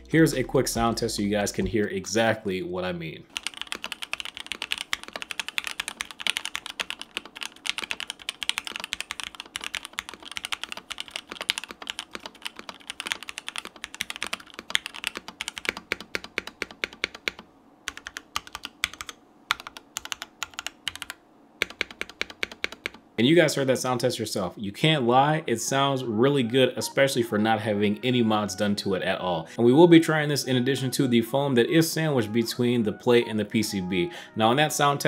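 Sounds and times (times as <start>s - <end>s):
clacky keyboard typing: 3.3s - 23.0s.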